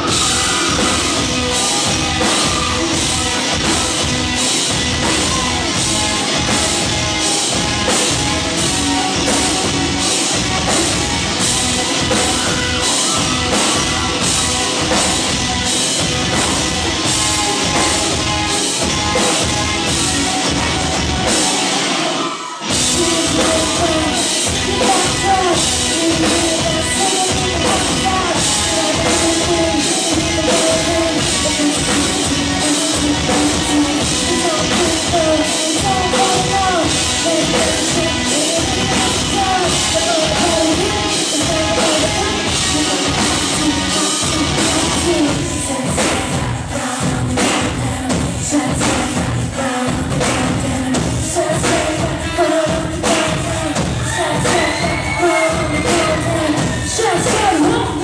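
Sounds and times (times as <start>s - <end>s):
distorted electric guitars: 0.0s - 58.0s
drum kit heavy beat: 0.0s - 58.0s
woman singing: 22.7s - 58.0s.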